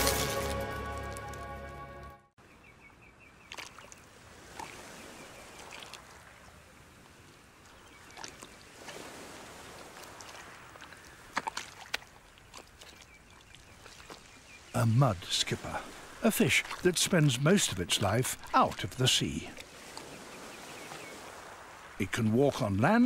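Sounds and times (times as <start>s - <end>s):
background music: 0.0s - 2.3s
splashes in wet mud: 3.5s - 6.4s, 8.0s - 14.5s, 15.4s - 20.2s.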